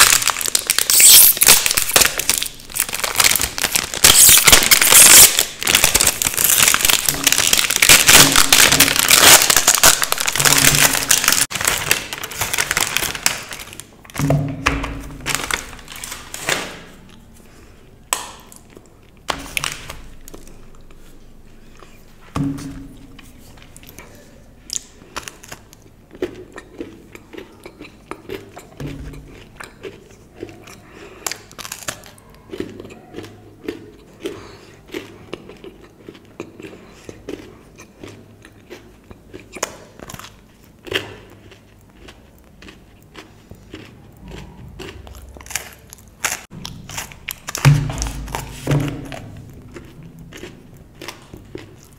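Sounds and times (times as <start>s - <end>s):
plastic wrapper crinkling: 0.0s - 14.1s, 14.8s - 17.2s, 18.1s - 20.9s, 45.2s - 51.9s
chewing: 23.7s - 51.9s.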